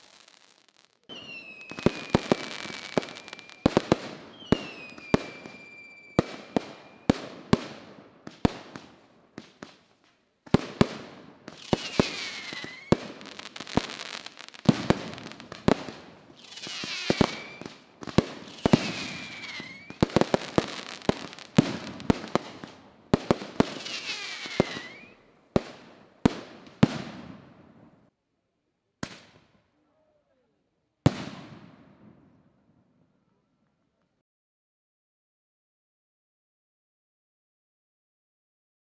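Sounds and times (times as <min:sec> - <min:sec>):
falling firework whistles: 0:00.0 - 0:07.2, 0:11.5 - 0:22.5, 0:23.5 - 0:25.2
fireworks banging and crackling: 0:00.0 - 0:27.9, 0:31.1 - 0:32.2.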